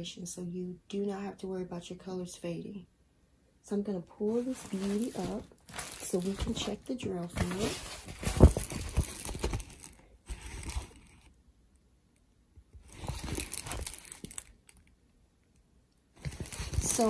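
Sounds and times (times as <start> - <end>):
plastic film crinkling and rustling: 4.2 - 11.3, 12.8 - 14.8, 16.2 - 17.0.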